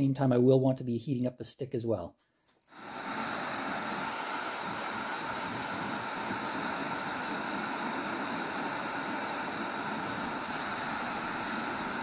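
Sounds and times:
heat gun fan hissing: 0:02.7 - 0:12.0.

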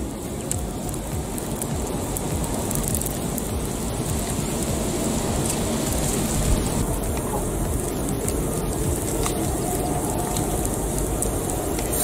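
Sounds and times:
low rumble: 0:00.0 - 0:12.0
wood fire crackling: 0:00.0 - 0:12.0.

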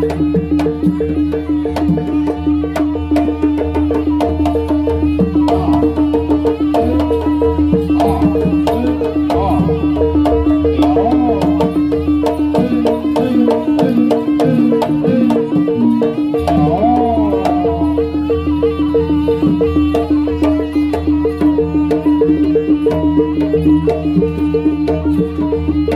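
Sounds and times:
hand drums: 0:00.0 - 0:25.9
bending melody line: 0:05.0 - 0:22.8.

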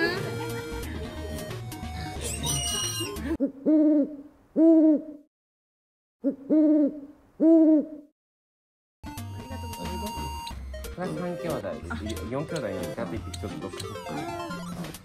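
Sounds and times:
background music: 0:00.0 - 0:03.4, 0:09.0 - 0:15.0
owl hooting: 0:02.3 - 0:05.3, 0:06.2 - 0:08.1.

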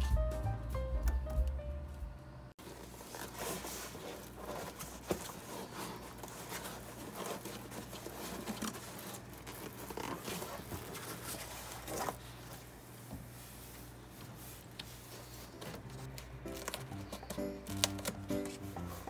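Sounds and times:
background music: 0:00.0 - 0:02.5, 0:16.1 - 0:19.0
foil sheet rustling and crinkling: 0:02.6 - 0:19.0.

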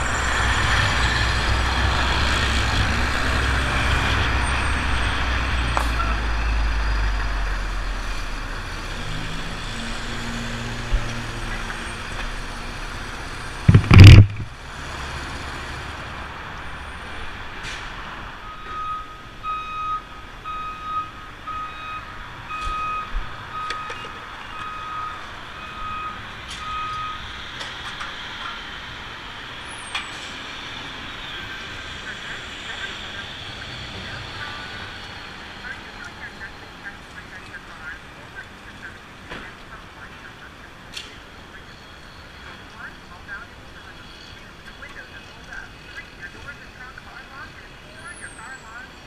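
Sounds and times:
motorcycle engine running: 0:13.7 - 0:14.4
loud thump: 0:13.7 - 0:14.5.

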